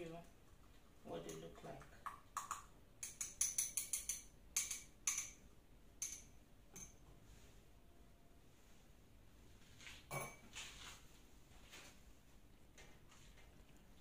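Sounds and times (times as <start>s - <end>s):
glass beakers clinking: 2.4s - 5.4s, 6.0s - 7.0s.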